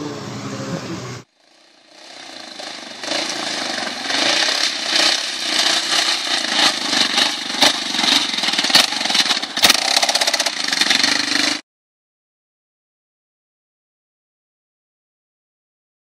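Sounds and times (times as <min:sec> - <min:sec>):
atv engine revving: 0:00.0 - 0:11.6.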